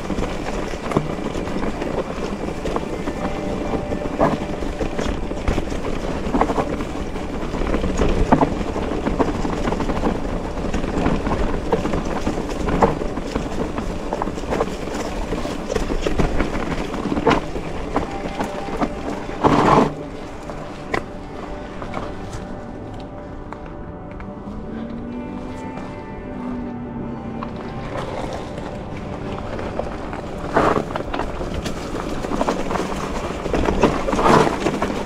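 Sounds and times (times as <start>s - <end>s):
bike rattling and knocking: 0.0s - 24.3s, 27.6s - 35.0s
bike tyres rumbling on trail: 0.0s - 35.0s
loud clatter: 27.6s - 35.0s.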